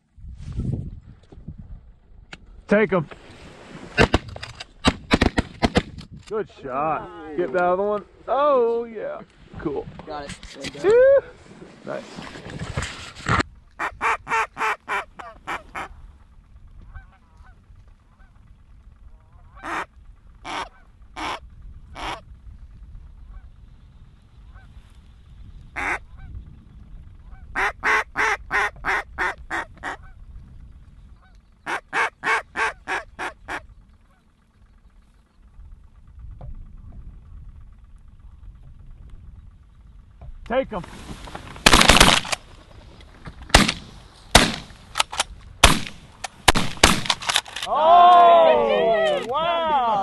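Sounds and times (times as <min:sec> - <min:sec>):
goose calling: 0:13.7 - 0:22.3, 0:24.4 - 0:24.9, 0:25.7 - 0:26.4, 0:27.2 - 0:30.2, 0:31.1 - 0:34.4.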